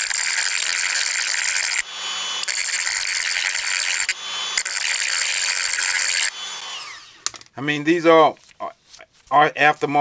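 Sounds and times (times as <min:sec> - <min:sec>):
rotary tool grinding steel: 0:00.0 - 0:07.4
rotary tool whine: 0:00.0 - 0:07.4.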